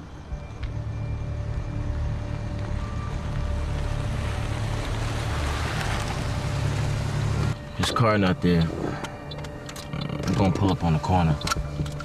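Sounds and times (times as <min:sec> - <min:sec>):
car engine rumbling: 0:00.0 - 0:12.0
road noise: 0:00.0 - 0:12.0.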